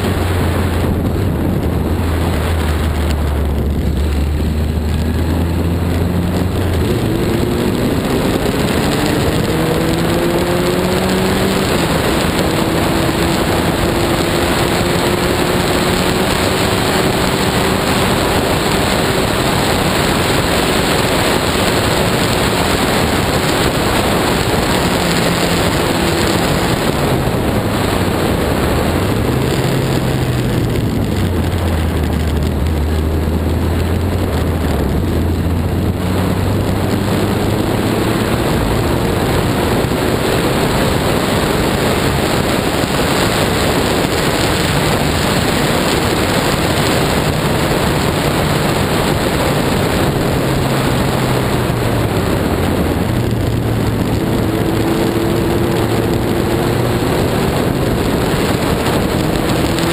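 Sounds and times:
race car engine revving: 0.0 - 59.9
wet track noise: 0.0 - 59.9
wind rushing: 0.0 - 59.9.

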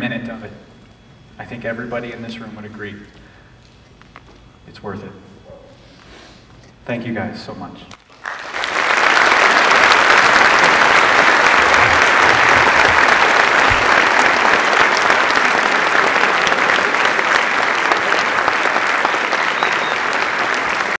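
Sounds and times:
audience applauding: 8.0 - 21.0.

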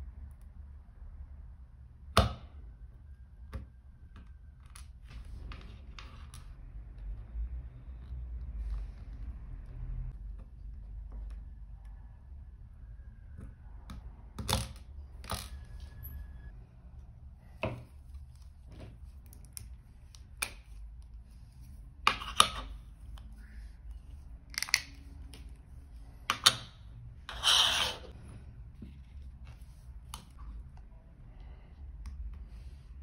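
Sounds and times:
louder scrape: 27.3 - 28.2.

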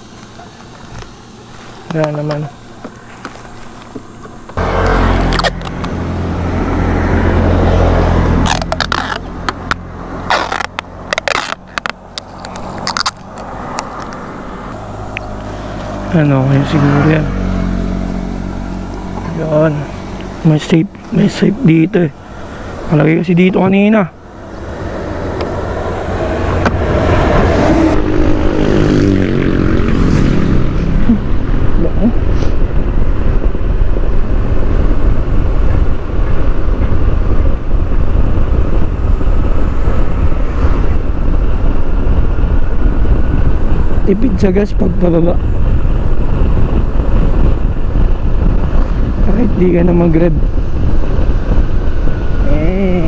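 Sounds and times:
vehicle passing with low rumble: 0.0 - 53.0
wind rushing over microphone: 0.0 - 53.0
adhesive tape ripping off roll: 5.2 - 5.9, 8.2 - 14.2.

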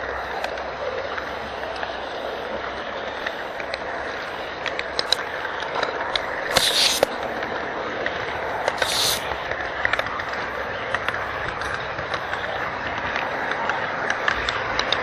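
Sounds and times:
hissing scrapes: 6.5 - 7.1, 8.7 - 9.3.

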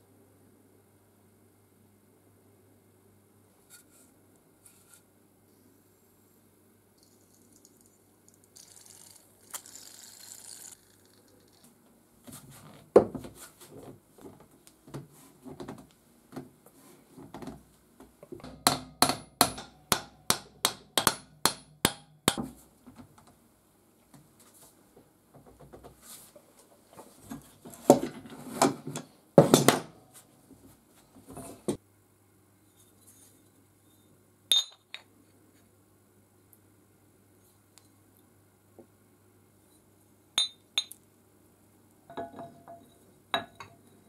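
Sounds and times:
spray can hiss: 8.6 - 10.8
hammer striking metal vise: 18.6 - 22.5.

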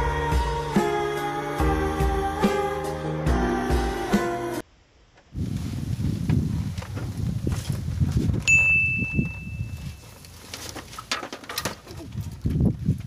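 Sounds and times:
steady high beep: 8.5 - 9.8.

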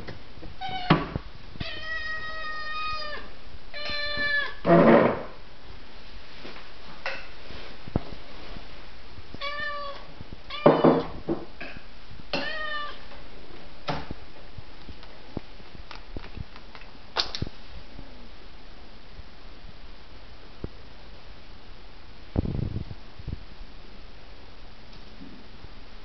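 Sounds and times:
cat meowing: 0.6 - 4.7, 9.4 - 11.1, 12.4 - 13.0.

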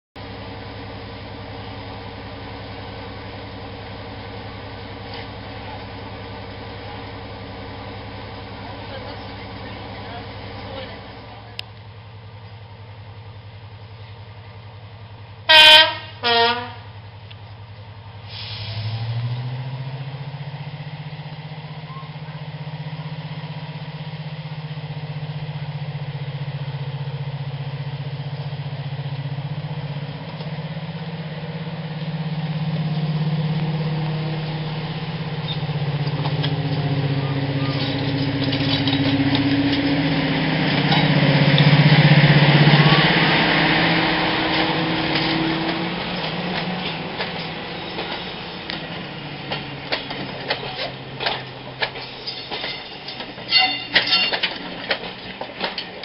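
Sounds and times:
diesel locomotive engines: 0.2 - 56.0
locomotive horn blasts: 15.5 - 17.0, 53.5 - 54.4.

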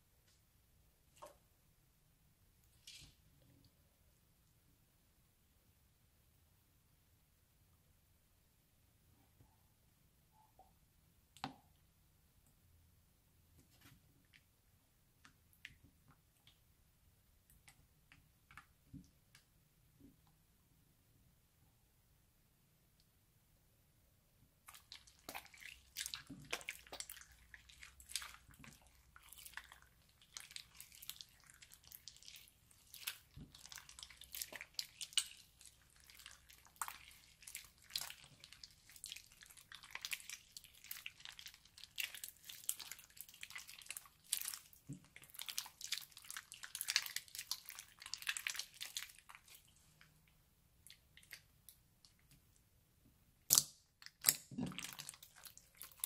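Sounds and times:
slime squelching and popping: 24.6 - 52.6, 53.4 - 56.0.

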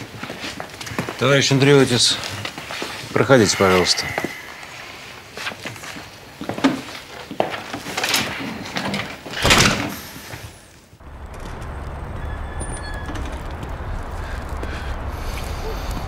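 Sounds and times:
street traffic rumble: 11.0 - 16.0.

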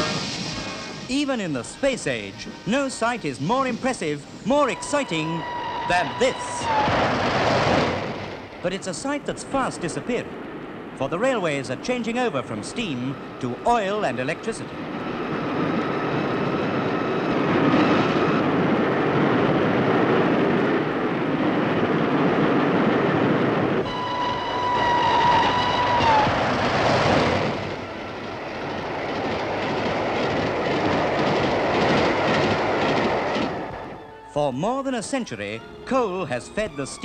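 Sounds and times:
steam locomotive clatter: 0.0 - 16.5, 22.8 - 34.0
steam whistle blast: 4.5 - 7.1, 23.8 - 26.4.

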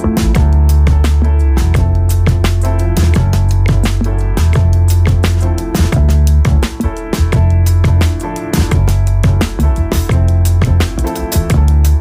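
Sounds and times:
electronic music with heavy bass: 0.0 - 12.0.

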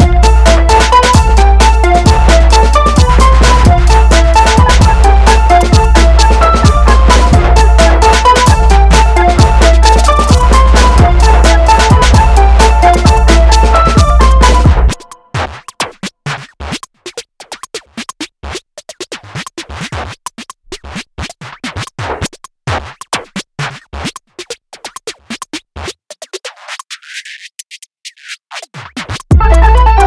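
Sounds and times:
background music: 0.0 - 15.4, 29.3 - 30.0.

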